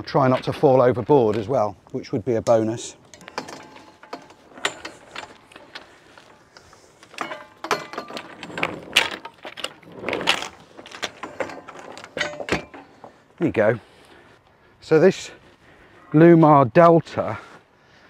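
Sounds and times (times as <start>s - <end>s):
anchor chain clanking: 2.4s - 13.4s.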